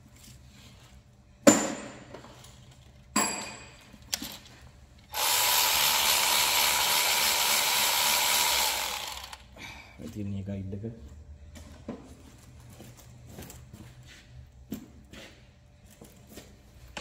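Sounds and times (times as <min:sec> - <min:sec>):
power driver running: 0:05.1 - 0:09.5.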